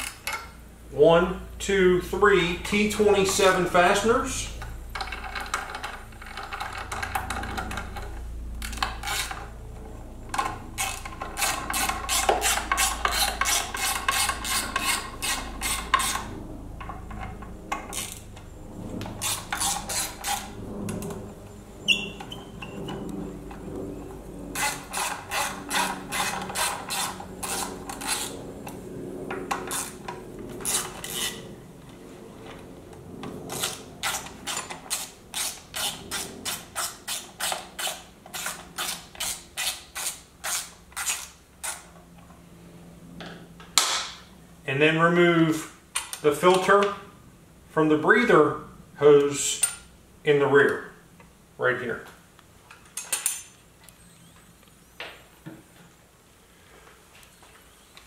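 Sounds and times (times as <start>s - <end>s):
metal parts handled and rubbed: 10.4s - 18.2s.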